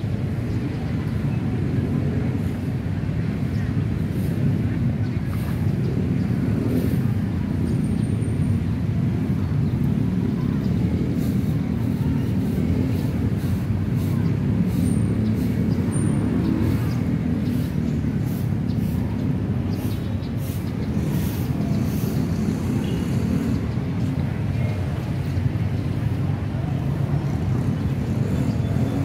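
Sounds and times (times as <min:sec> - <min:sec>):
road traffic: 0:00.0 - 0:29.0.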